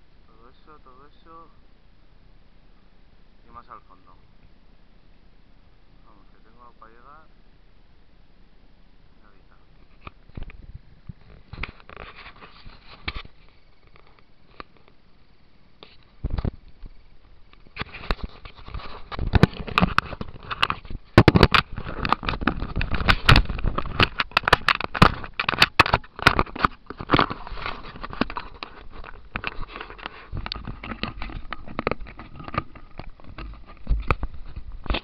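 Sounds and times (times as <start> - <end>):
camera handling rustling and scraping: 9.8 - 15.0, 15.8 - 35.0.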